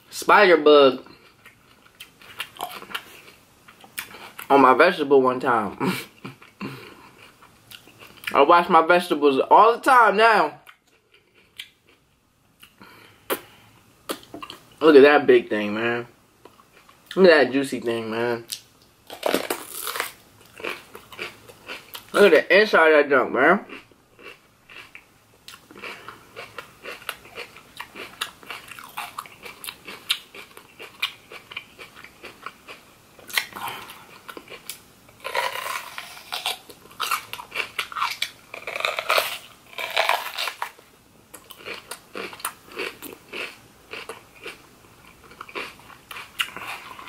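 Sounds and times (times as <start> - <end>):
person crunching bell pepper: 1.0 - 4.5, 18.5 - 22.3, 23.6 - 47.0.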